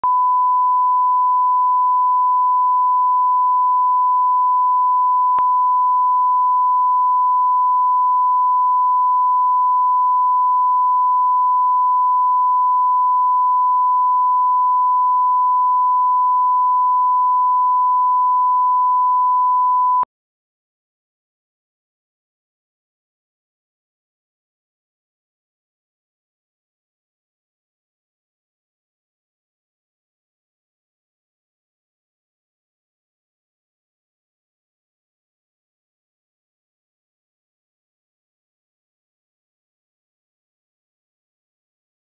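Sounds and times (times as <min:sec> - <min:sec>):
steady reference tone beep: 0:00.0 - 0:20.1.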